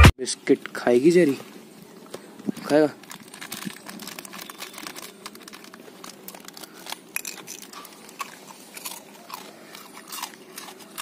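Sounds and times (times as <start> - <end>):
dog crunching biscuits: 2.5 - 11.0.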